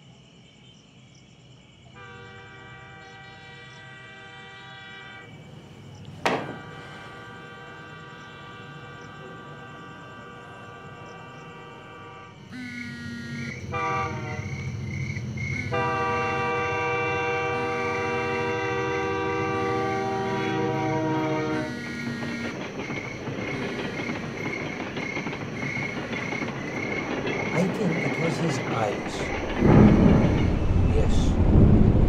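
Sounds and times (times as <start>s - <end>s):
rumble of train passing: 1.8s - 32.0s
train horn blasts: 2.0s - 5.4s, 6.3s - 14.9s, 15.5s - 22.8s.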